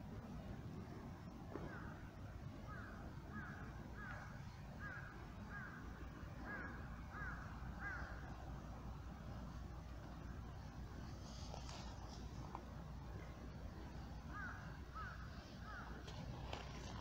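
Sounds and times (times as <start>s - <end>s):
low background rumble: 0.0s - 17.0s
crow cawing: 2.7s - 5.8s, 6.4s - 8.2s, 14.3s - 16.0s.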